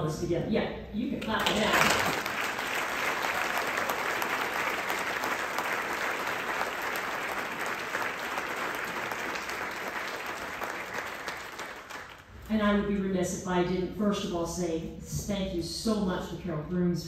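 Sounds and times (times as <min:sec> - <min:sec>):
audience applauding: 0:01.4 - 0:12.3.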